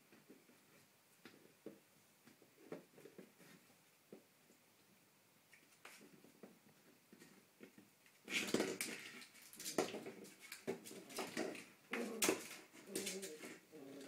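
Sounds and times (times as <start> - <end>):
puppy play growling: 10.9 - 14.0.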